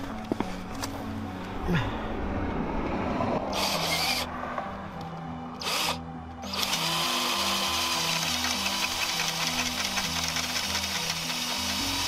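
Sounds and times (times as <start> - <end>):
cordless drill running: 3.6 - 4.2, 5.6 - 12.0.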